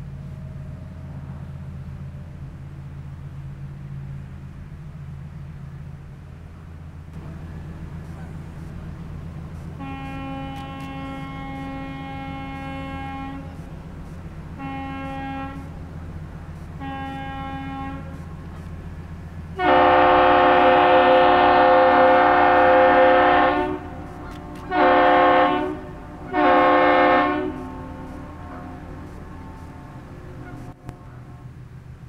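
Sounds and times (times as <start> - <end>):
loud ship horn blasts: 9.6 - 13.8, 14.5 - 16.0, 16.6 - 18.5, 19.6 - 31.6
distant ship horn: 9.6 - 18.7, 19.5 - 31.7.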